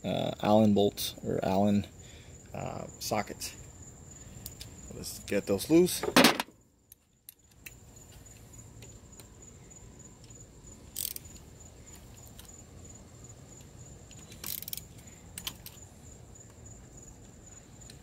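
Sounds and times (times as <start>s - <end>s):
ratchet metallic clicks: 10.3s - 11.5s, 14.0s - 15.8s.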